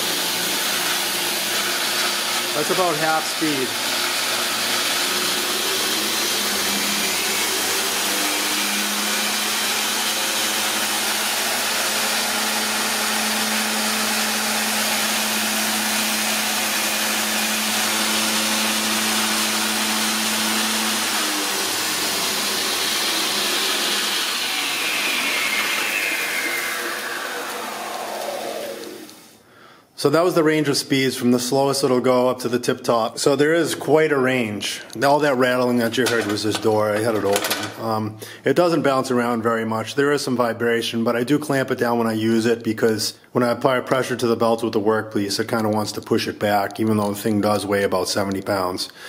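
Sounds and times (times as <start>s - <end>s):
belt grinder whining: 0.0s - 29.4s, 34.9s - 37.8s
machine door rattling: 36.2s - 37.8s.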